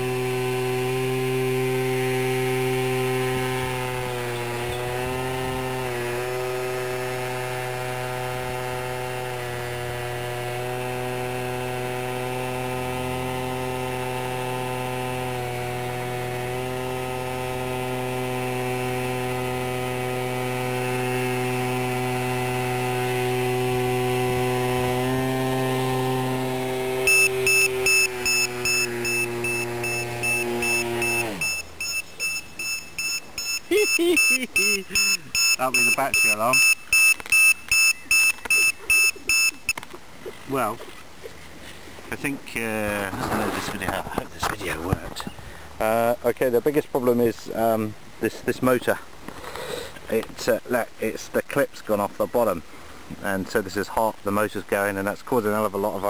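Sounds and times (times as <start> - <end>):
electric motor and propeller whine: 0.0 - 45.8
battery alarm beeping: 27.0 - 39.8
person speaking: 33.6 - 36.8, 40.2 - 41.0, 42.1 - 49.1.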